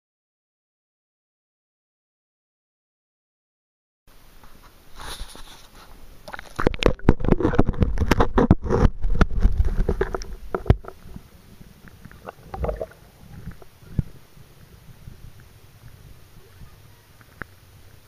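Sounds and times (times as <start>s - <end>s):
water sloshing: 11.8s - 14.7s.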